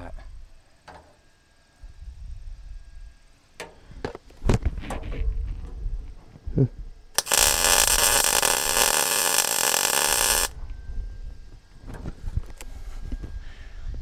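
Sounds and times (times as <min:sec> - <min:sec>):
welding arc crackling: 0:07.2 - 0:10.6.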